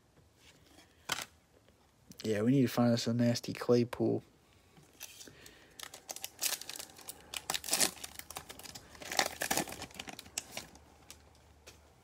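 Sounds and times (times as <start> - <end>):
foil wrapper tearing and crinkling: 5.0 - 11.2.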